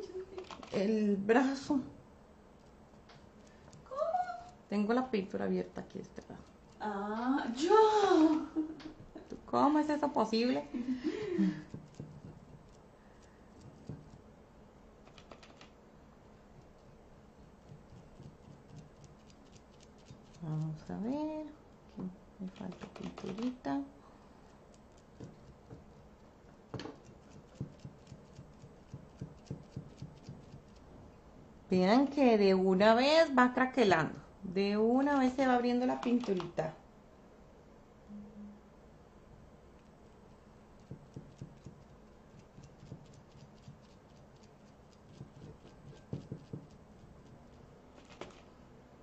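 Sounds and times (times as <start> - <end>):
sponge tapping ceramic: 11.6 - 12.8, 13.6 - 14.2, 26.7 - 30.7, 40.8 - 41.8, 42.4 - 43.8, 45.1 - 46.8.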